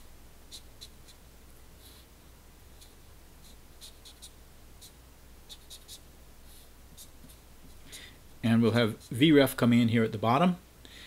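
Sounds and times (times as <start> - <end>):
felt-tip pen scratching on paper: 0.5 - 1.2, 2.7 - 8.0.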